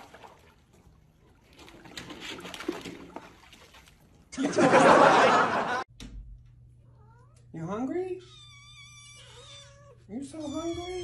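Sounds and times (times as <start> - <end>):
dog splashing into pool: 0.0 - 4.4
soft water splashing: 0.0 - 5.0.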